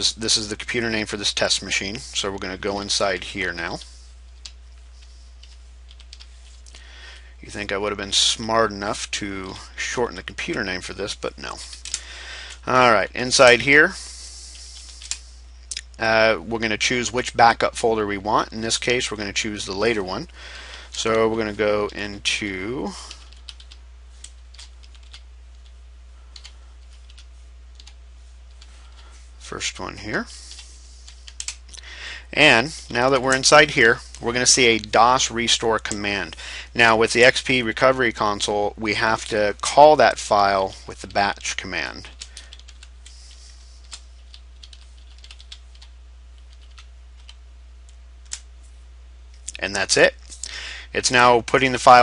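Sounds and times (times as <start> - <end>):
low hum: 0.0 - 51.8
keyboard typing: 3.8 - 6.4, 23.1 - 29.0, 30.5 - 31.6, 42.1 - 47.4.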